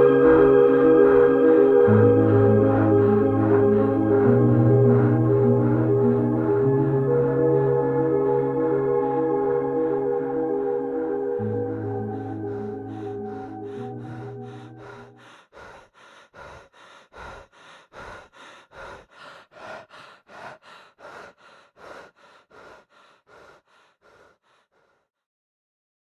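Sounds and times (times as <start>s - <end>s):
sustained music notes: 0.0s - 15.3s
runner panting: 11.4s - 25.1s.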